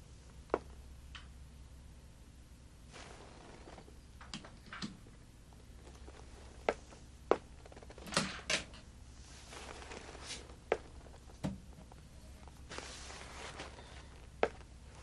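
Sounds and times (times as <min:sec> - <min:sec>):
rustle: 0:12.6 - 0:14.3.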